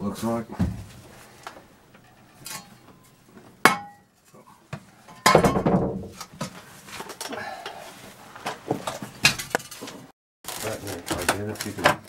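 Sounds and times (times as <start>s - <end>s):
tools clattering in rubble: 2.0s - 4.1s.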